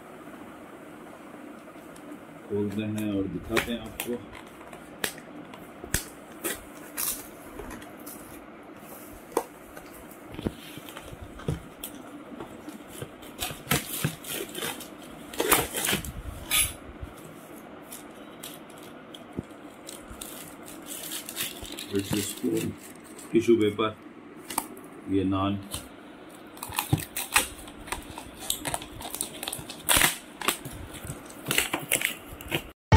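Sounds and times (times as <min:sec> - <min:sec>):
paper rustling and crinkling: 0:19.6 - 0:23.5
sticky tape peeling: 0:26.6 - 0:32.7.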